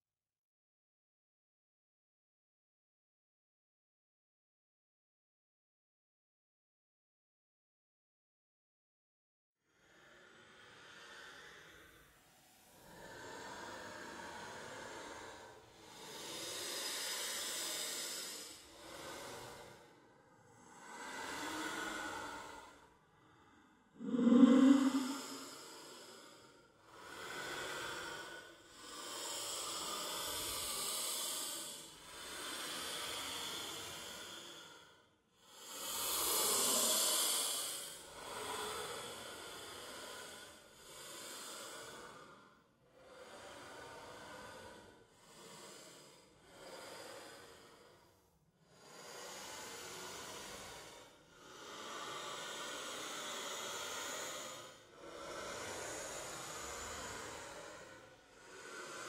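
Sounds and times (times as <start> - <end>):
ghostly breathy sobs: 12.5 - 34.9, 35.5 - 59.0.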